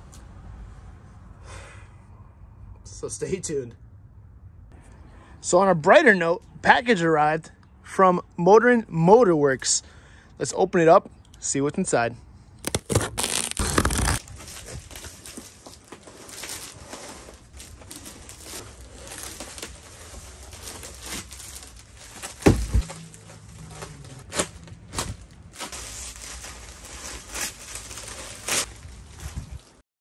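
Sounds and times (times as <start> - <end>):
plastic wrapping crinkling: 12.6 - 29.8.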